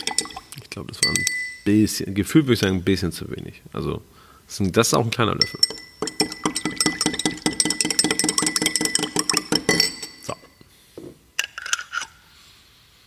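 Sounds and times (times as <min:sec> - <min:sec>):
spoon clinking in glass: 0:00.0 - 0:01.7, 0:05.4 - 0:10.7.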